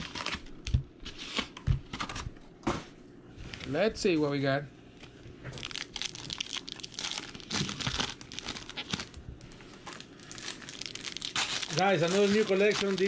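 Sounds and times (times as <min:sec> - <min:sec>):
card pack wrappers crinkling: 0:05.6 - 0:13.0.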